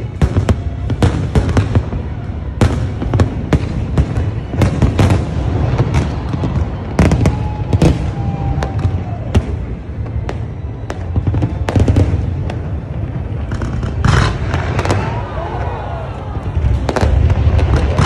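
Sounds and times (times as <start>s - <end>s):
fireworks bangs and crackles: 0.0s - 18.0s.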